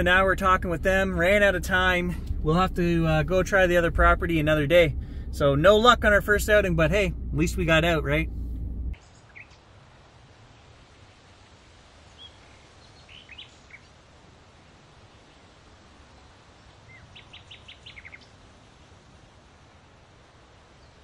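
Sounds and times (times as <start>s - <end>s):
small birds chirping: 12.1s - 14.0s, 16.2s - 18.4s.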